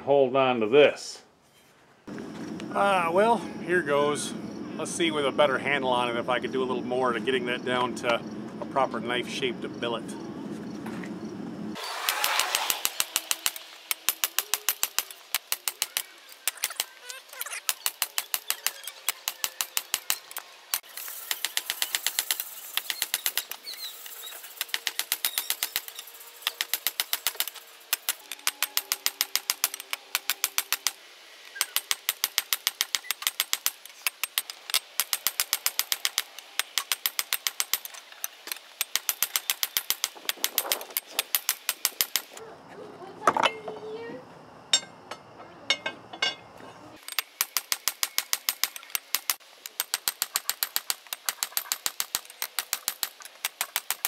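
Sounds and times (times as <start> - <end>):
hammer striking hot steel on anvil: 44.7 - 46.4.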